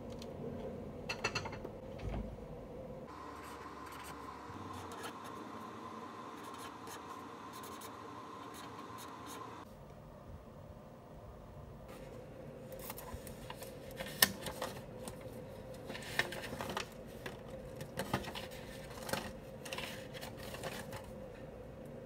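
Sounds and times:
faint steady hum: 0:00.0 - 0:22.0
notepad rustling: 0:11.9 - 0:21.2.

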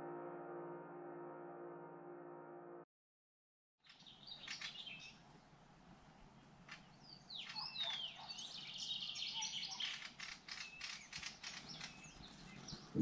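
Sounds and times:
small birds singing: 0:03.8 - 0:13.0.

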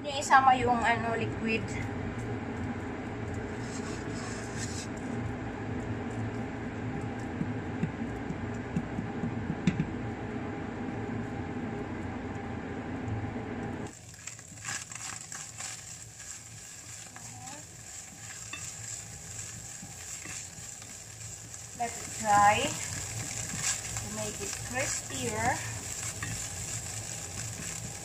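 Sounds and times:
spatula scraping a pan: 0:03.5 - 0:04.9, 0:14.3 - 0:28.0
tuna sizzling in a pan: 0:13.9 - 0:28.0.

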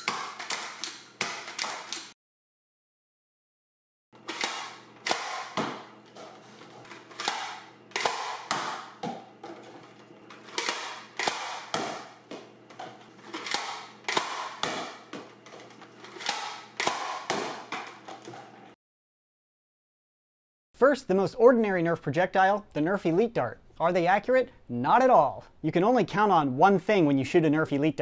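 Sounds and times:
toy blaster firing plastic snaps: 0:00.0 - 0:02.1, 0:04.3 - 0:05.8, 0:10.6 - 0:12.0.

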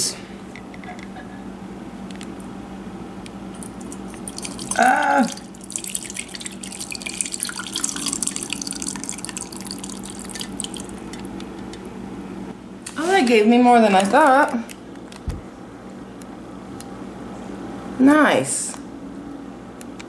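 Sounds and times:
melted fat trickling into a jar: 0:03.6 - 0:11.2.

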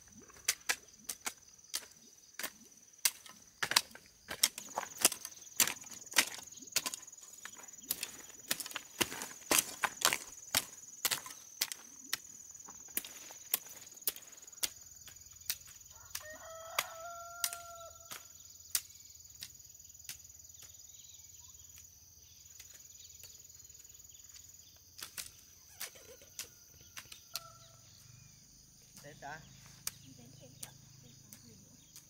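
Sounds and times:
rooster crowing: 0:15.9 - 0:18.3, 0:26.3 - 0:28.0.

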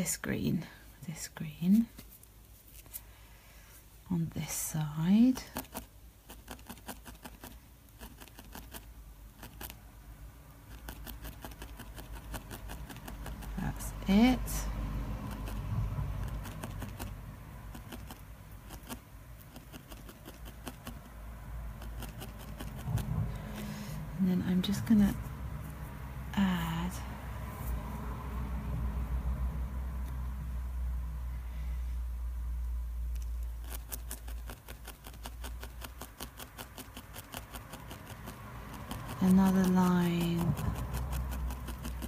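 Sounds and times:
low steady hum: 0:00.0 - 0:42.0
felting needle poking wool: 0:05.2 - 0:09.8, 0:10.6 - 0:23.7, 0:33.1 - 0:42.0
low hum: 0:21.0 - 0:33.7.

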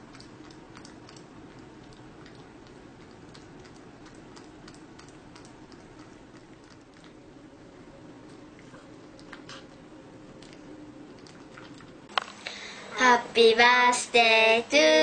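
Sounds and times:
cat chewing wet clicks: 0:00.0 - 0:07.2
low background hum: 0:00.0 - 0:15.0.

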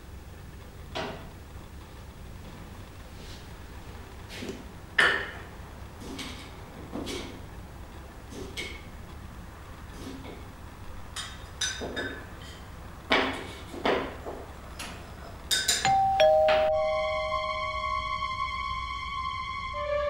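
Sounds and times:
two-tone doorbell chime: 0:15.8 - 0:17.8
sustained music chord: 0:15.9 - 0:20.0.

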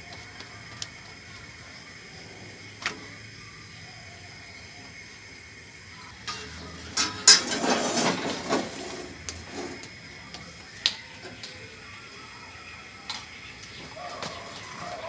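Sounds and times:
metal pan and tongs clattering: 0:06.2 - 0:08.9.

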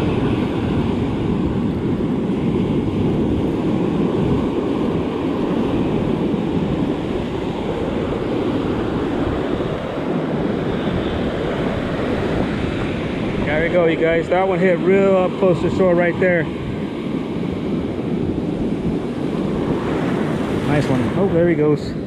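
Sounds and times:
surf breaking on sand: 0:00.0 - 0:22.0
wind buffeting microphone: 0:00.0 - 0:22.0.

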